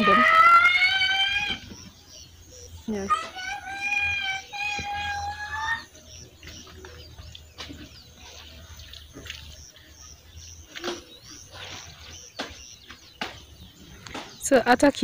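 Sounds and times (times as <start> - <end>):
birds chirping: 0.0 - 15.0
sharp bird calls or snaps: 12.4 - 14.5.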